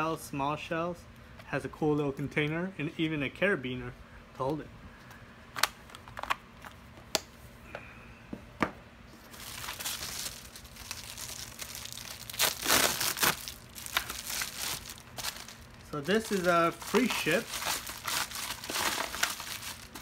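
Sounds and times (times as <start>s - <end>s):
plastic packaging crinkling and tearing: 9.3s - 20.0s.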